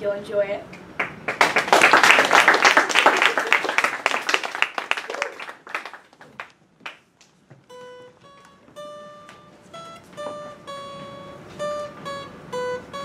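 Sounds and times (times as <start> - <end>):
audience applause: 1.0 - 7.0
acoustic guitar picking notes: 7.5 - 13.0.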